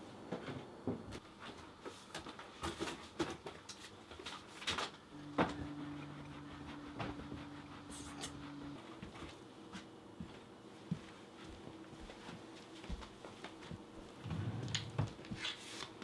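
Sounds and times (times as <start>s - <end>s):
steady low hum: 5.1s - 15.2s.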